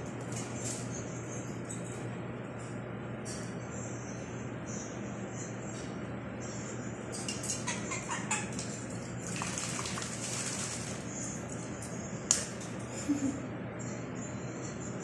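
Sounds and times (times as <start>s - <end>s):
parrot splashing water: 8.1s - 11.6s.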